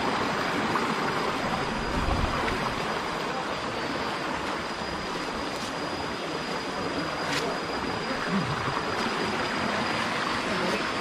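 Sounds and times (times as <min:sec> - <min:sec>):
thin high tone: 0:00.4 - 0:11.0
wind rushing on microphone: 0:01.6 - 0:02.8.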